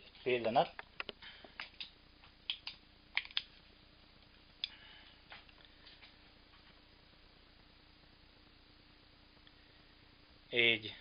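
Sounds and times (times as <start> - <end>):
faint steady hum: 0.0 - 11.0
small sharp clicks and taps: 0.8 - 3.5.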